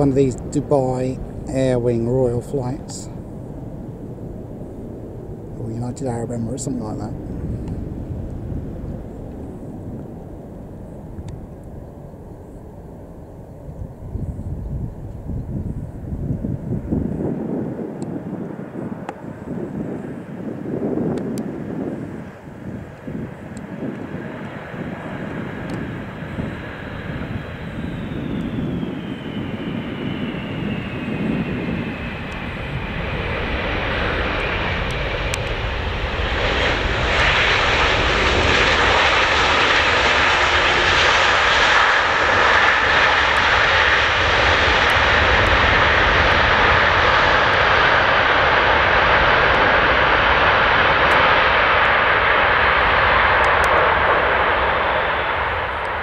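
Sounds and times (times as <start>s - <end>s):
jet engine rush: 0.0s - 56.0s
jet engine whine: 0.0s - 56.0s.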